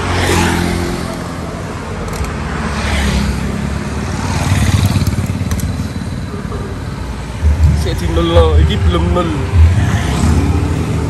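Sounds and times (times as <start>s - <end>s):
motorcycles passing: 0.0s - 11.0s
sharp clicks: 2.0s - 2.4s.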